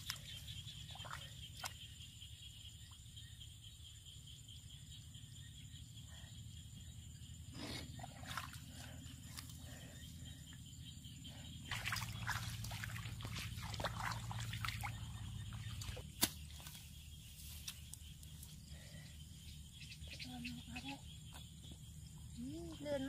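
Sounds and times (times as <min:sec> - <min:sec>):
small splashes and drips: 0:00.0 - 0:01.8, 0:08.0 - 0:09.5, 0:11.7 - 0:16.8
shallow water sloshing: 0:11.7 - 0:16.7
wet mud squelching: 0:11.7 - 0:17.0.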